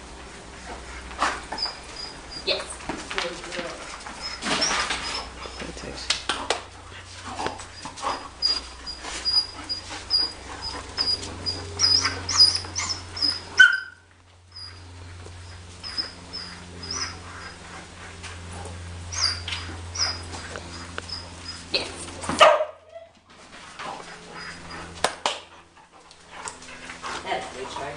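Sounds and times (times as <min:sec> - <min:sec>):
dog whining: 0:04.1 - 0:05.7, 0:07.7 - 0:17.6, 0:19.1 - 0:22.0, 0:22.8 - 0:23.2.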